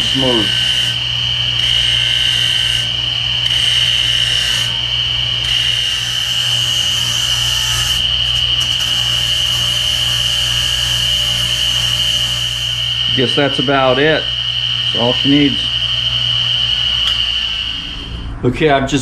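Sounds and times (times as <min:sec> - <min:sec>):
metal gear rasping on grinding wheel: 0:00.0 - 0:17.7
bench grinder humming and whining: 0:00.0 - 0:18.1.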